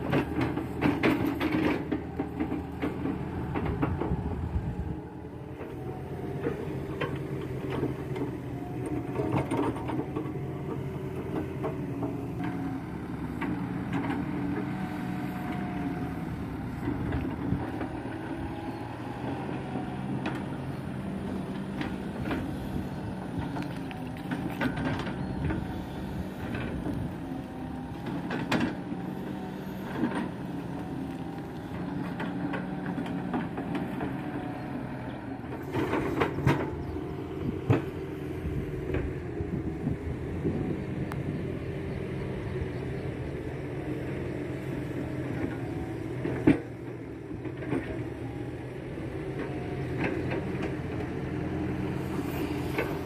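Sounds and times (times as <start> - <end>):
excavator diesel engine running: 0.0 - 53.0.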